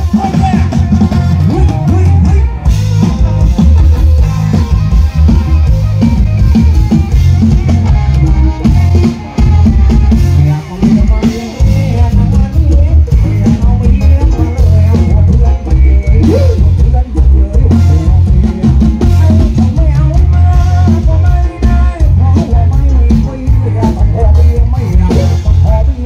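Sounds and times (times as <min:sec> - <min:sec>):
heavy bass drum: 0:00.0 - 0:26.0
loud live band music: 0:00.0 - 0:26.0.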